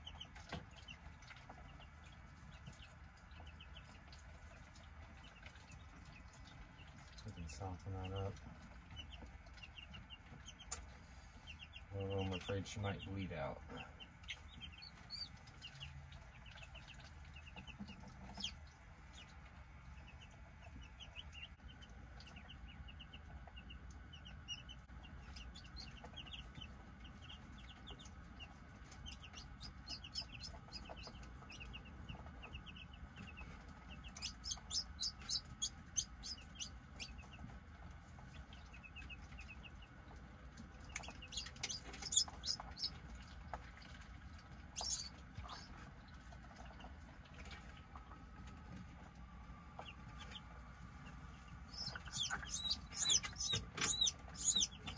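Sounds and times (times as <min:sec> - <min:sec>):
chicks and ducklings peeping: 0:00.0 - 0:54.9
low steady hum: 0:00.0 - 0:54.9.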